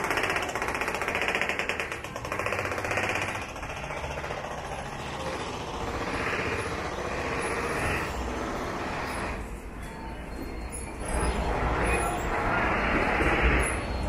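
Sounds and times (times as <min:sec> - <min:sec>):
rapid mechanical rattling: 0:00.0 - 0:09.6.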